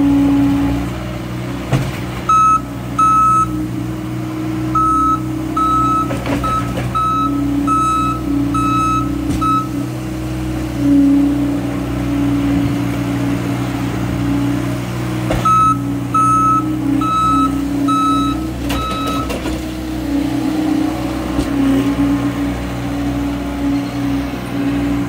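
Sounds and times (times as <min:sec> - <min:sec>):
diesel engines running: 0:00.0 - 0:25.0
backup alarm beeping: 0:02.3 - 0:03.6, 0:04.8 - 0:09.8, 0:15.4 - 0:19.4.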